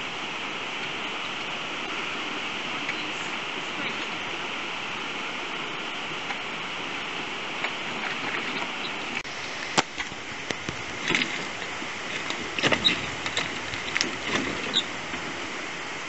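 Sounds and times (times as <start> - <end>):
running water: 0.0 - 16.0
scooter wheels knocking over rocks: 9.6 - 15.2.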